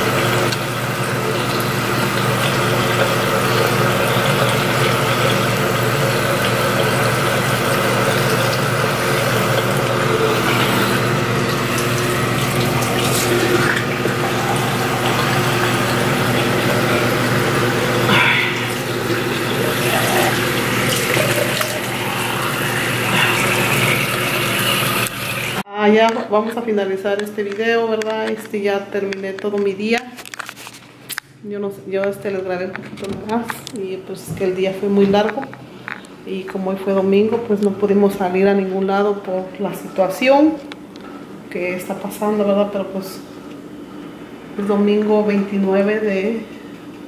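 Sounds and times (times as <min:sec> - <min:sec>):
sink tap running: 0:00.0 - 0:30.4.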